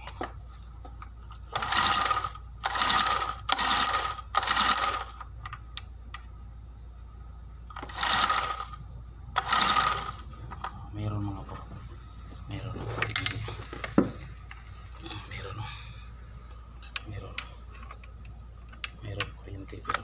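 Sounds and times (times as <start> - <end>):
recoil starter pulled: 1.3 - 5.3, 7.7 - 8.8, 9.4 - 10.2
engine spinning over: 7.7 - 10.3.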